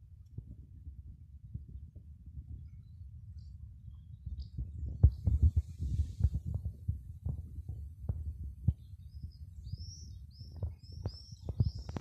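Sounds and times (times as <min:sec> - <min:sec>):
small bird chirping: 0:08.6 - 0:12.0.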